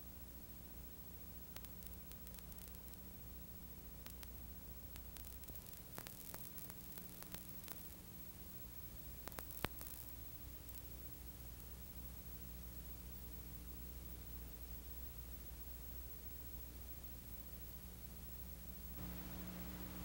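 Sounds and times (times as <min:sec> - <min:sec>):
film soundtrack hiss: 0:00.0 - 0:20.0
clicks and pops: 0:05.0 - 0:07.9, 0:09.2 - 0:10.1
low hum: 0:18.9 - 0:20.0.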